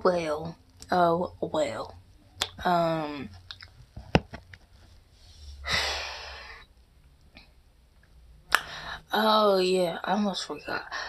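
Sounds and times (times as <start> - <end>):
breathy sigh: 5.6 - 6.6.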